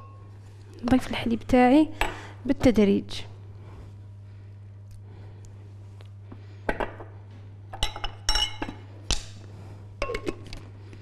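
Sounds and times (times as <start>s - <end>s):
steady low hum: 0.0s - 11.0s
glassware and crockery clinking: 7.8s - 8.8s.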